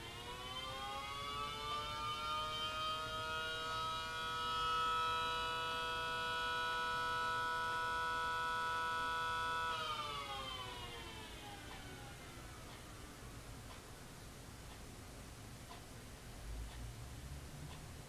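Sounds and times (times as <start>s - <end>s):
siren sounding through a wall: 0.0s - 13.3s.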